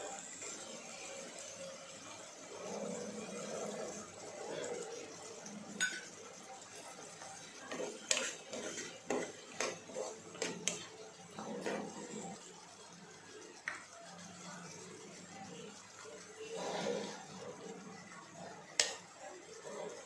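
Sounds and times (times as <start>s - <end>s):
ladle stirring and scraping pot: 2.7s - 12.5s, 16.4s - 20.0s
ladle clinking against pot: 5.8s - 6.1s.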